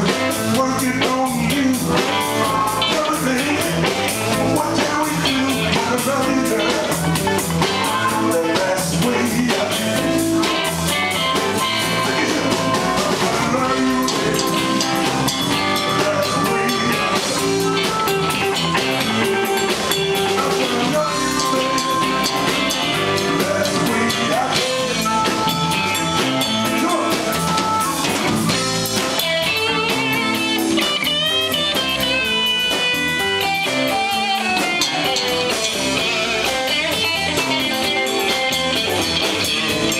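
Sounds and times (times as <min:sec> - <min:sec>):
electric guitar bent notes: 0:00.0 - 0:39.9
live band playing: 0:00.0 - 0:39.9
amplified harmonica: 0:10.4 - 0:39.9.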